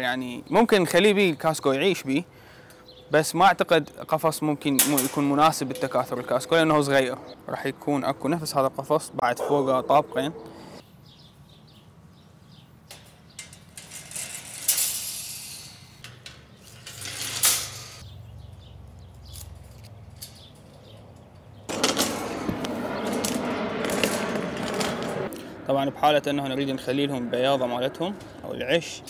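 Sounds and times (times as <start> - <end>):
metallic clicks of bird cage: 19.1 - 21.6.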